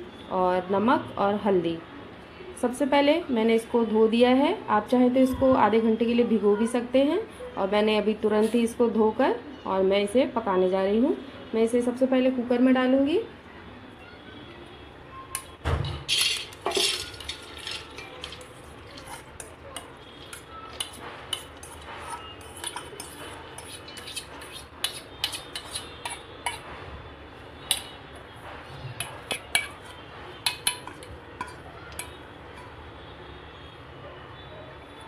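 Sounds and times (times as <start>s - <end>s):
lentils clinking and rattling: 16.1s - 22.8s.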